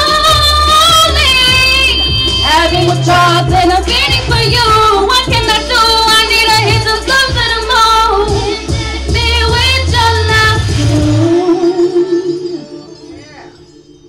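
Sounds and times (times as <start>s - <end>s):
drum hits: 0.0s - 7.7s
bass notes: 0.0s - 13.0s
woman singing into microphone: 0.0s - 13.0s.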